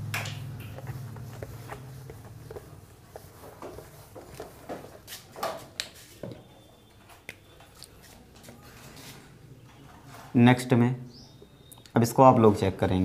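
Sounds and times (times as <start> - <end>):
cloth rubbing on whiteboard: 0.6 - 5.3.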